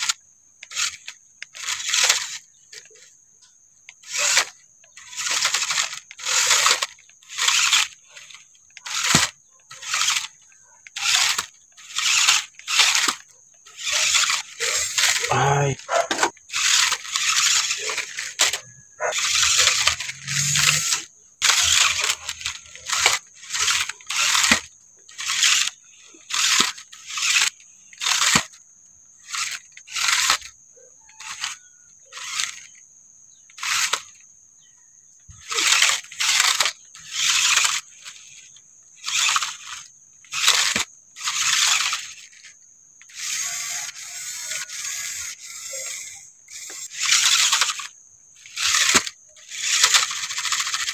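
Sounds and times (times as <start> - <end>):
toy car motor whirring: 0.0 - 50.9.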